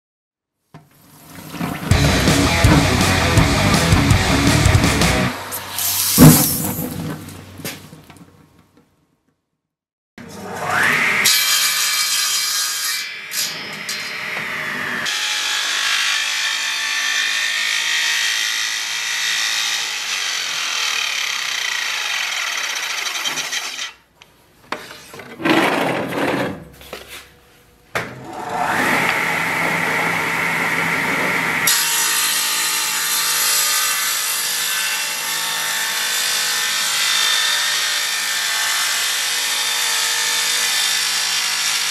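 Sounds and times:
table saw cutting wood: 1.9 - 7.0, 10.2 - 24.0, 28.2 - 41.9.

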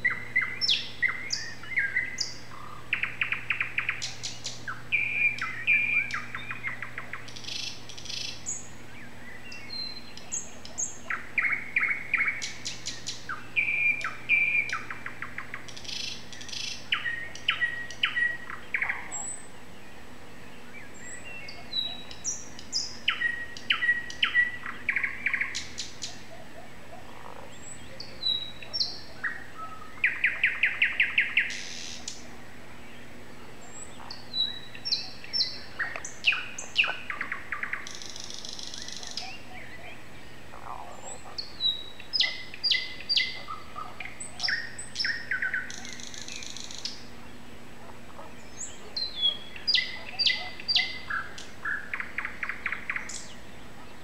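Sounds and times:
songbird singing: 0.0 - 54.0
steady low hum: 0.0 - 54.0.

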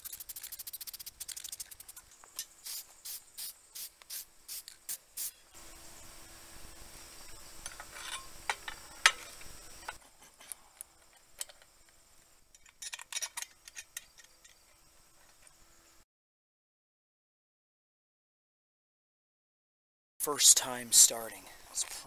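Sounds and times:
metal parts clinking: 12.5 - 14.7.

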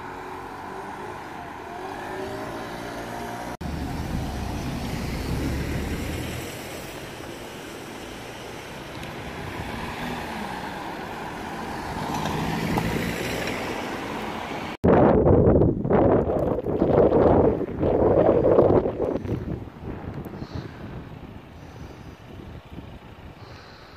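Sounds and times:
cars driving past: 0.0 - 14.8.

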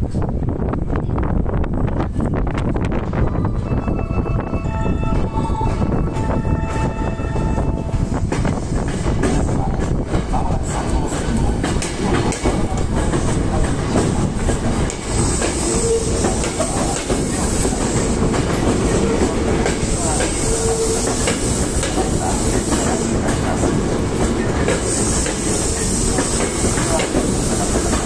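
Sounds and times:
train wheels clattering over rails: 7.8 - 28.0.

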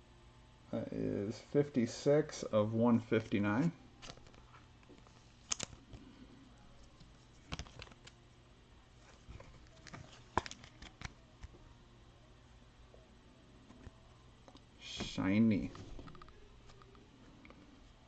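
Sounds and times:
cards and plastic sleeves rustling: 4.0 - 6.0, 6.8 - 8.2, 9.0 - 11.2
sharp card clicks: 5.5 - 5.7.

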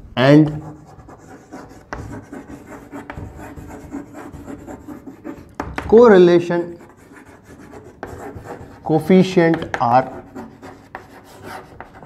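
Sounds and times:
person speaking: 0.0 - 2.4, 3.6 - 10.8
chalk scratching on blackboard: 0.4 - 12.0.

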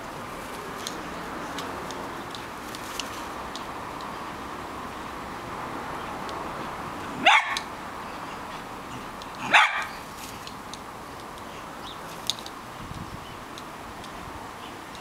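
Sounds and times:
dog barking: 7.2 - 7.7, 9.4 - 10.0.

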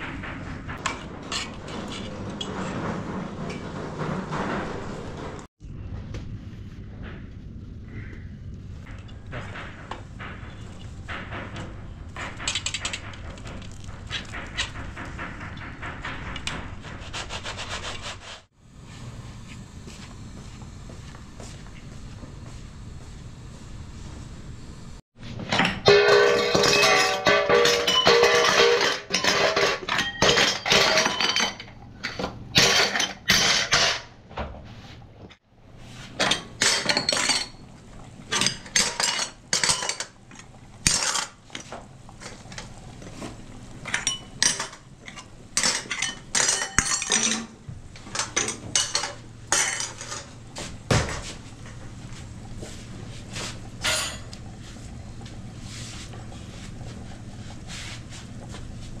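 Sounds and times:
dishes and cutlery clattering: 25.5 - 34.1, 36.2 - 37.7, 38.3 - 42.9, 43.8 - 51.3, 53.8 - 54.4.

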